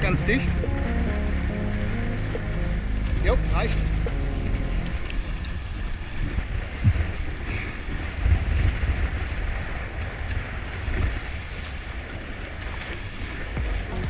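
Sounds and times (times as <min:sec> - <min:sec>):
water rushing past hull: 0:00.0 - 0:14.0
wind buffeting microphone: 0:00.0 - 0:14.0.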